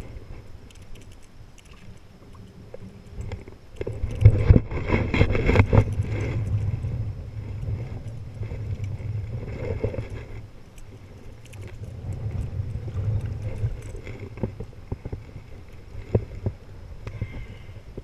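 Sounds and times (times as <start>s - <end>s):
choppy water: 0.0s - 18.0s
wind on microphone: 2.2s - 18.0s.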